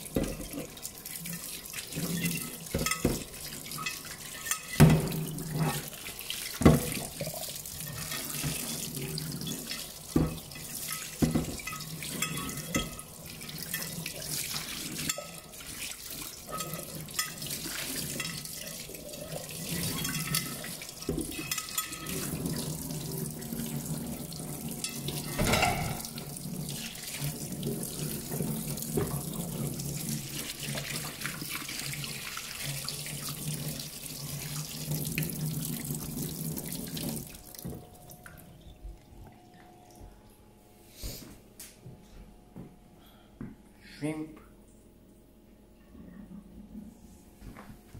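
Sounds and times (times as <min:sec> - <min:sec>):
tap water running into sink: 0:00.0 - 0:38.5
plate knocking against sink: 0:25.4 - 0:26.1.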